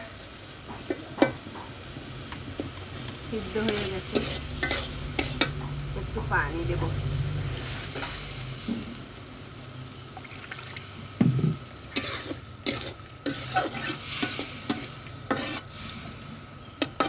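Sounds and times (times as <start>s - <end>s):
low sizzle: 0.0s - 17.0s
metal spatula scraping pan: 3.3s - 5.7s, 11.9s - 16.2s.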